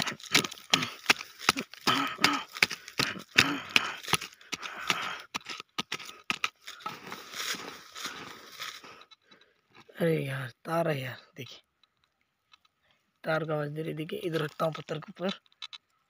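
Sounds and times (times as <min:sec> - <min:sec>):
stick scraping stony soil: 0:00.0 - 0:10.1, 0:13.3 - 0:15.8.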